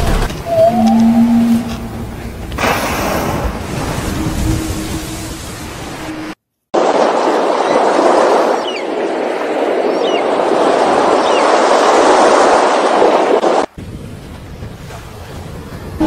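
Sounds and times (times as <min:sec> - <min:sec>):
high wavering bird calls: 0:00.5 - 0:02.1.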